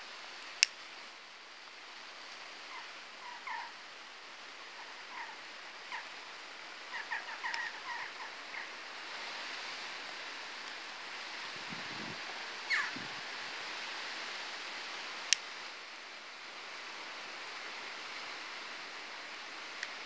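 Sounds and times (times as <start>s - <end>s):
faint outdoor hiss: 0.0s - 20.0s
bird chirping calls: 4.8s - 6.1s, 6.9s - 8.8s, 12.6s - 13.1s.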